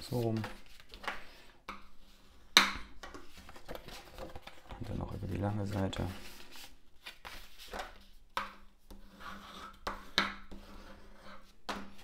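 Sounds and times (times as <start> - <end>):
paper rubbing strokes: 5.7 - 7.8.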